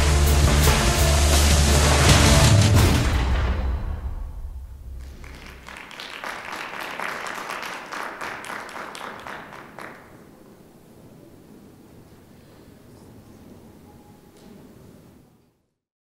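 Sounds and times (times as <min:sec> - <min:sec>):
audience applauding: 0:05.0 - 0:10.5.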